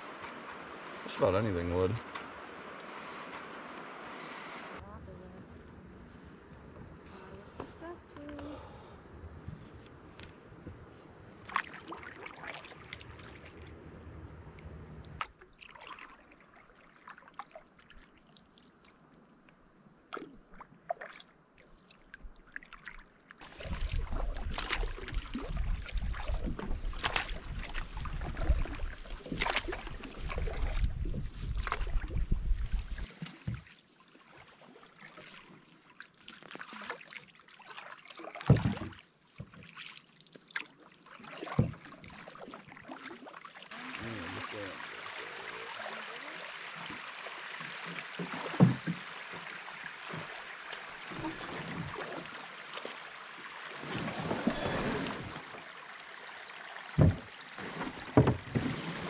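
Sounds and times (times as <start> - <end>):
paddle strokes and water splashing: 0.0 - 19.2, 20.1 - 59.0
knocks against canoe hull: 47.9 - 49.4, 57.0 - 58.9.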